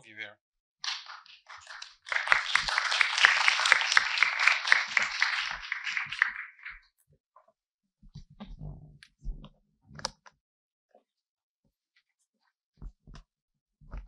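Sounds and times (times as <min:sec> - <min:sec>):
audience applause: 0:00.8 - 0:06.8.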